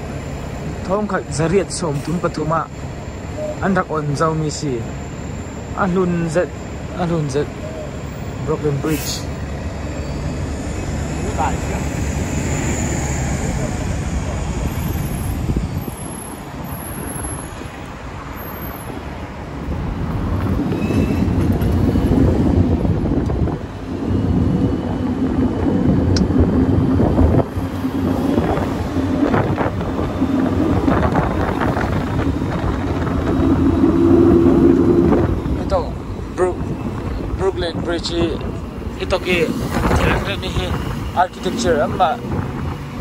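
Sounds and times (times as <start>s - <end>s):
bus engine drone: 0.0s - 43.0s.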